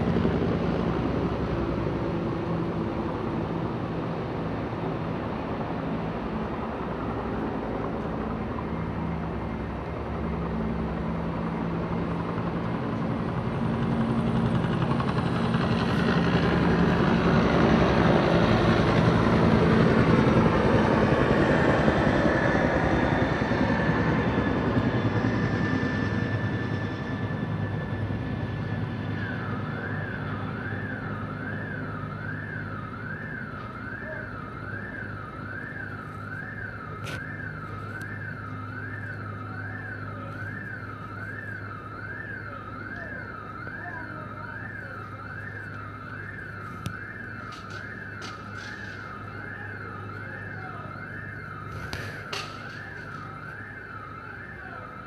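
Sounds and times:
loud engine rumble: 0.0 - 33.8
siren wailing yelp: 8.6 - 55.0.

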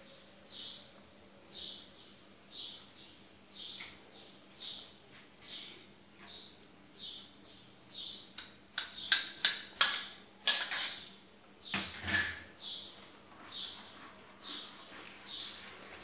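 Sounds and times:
spoon clinking against bowl: 8.4 - 11.1, 11.9 - 12.6.

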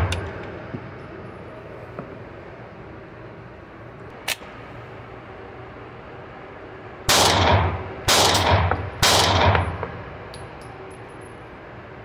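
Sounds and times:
pistol shots: 7.1 - 10.0.

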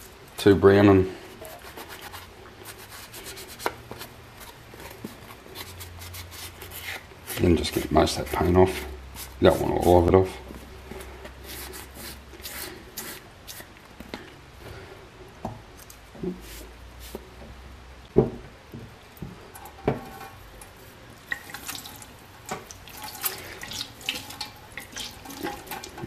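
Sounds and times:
water splashing in sink: 20.6 - 26.0.

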